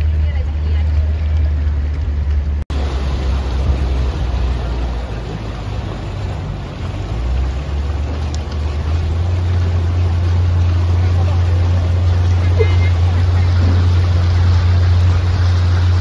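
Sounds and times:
motorboat engine running: 0:00.0 - 0:16.0
water rushing: 0:00.0 - 0:16.0
wind noise: 0:12.0 - 0:16.0.

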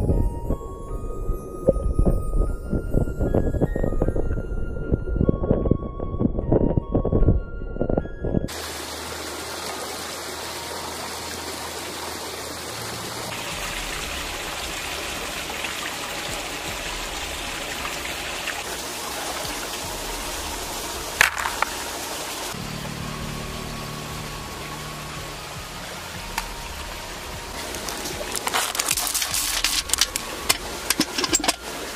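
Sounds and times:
flowing river water: 0:08.5 - 0:31.9.

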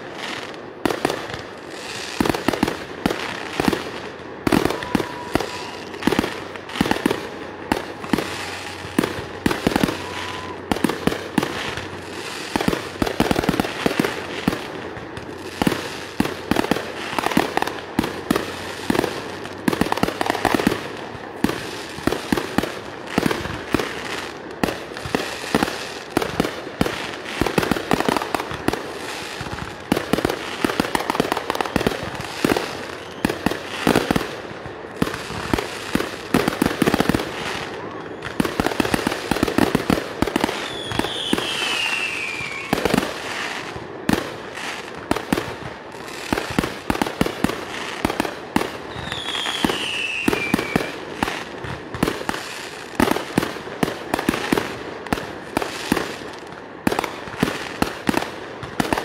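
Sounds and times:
fireworks bangs and crackling: 0:00.0 - 0:59.0
falling firework whistles: 0:04.4 - 0:06.2, 0:08.0 - 0:11.5, 0:31.0 - 0:34.0, 0:40.5 - 0:43.6, 0:48.9 - 0:51.0.

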